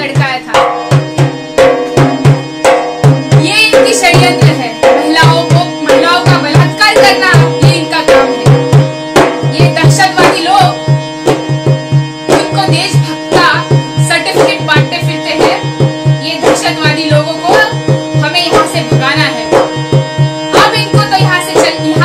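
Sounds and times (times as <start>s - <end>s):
hand drum beating: 0.0s - 22.0s
harmonium: 0.0s - 22.0s
woman singing: 3.4s - 8.6s, 9.6s - 10.8s, 12.4s - 19.6s, 20.6s - 22.0s.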